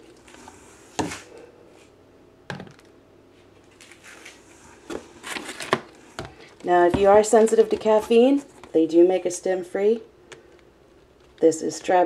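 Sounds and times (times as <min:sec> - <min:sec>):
plastic tubs knocking on cardboard: 0:06.2 - 0:08.2.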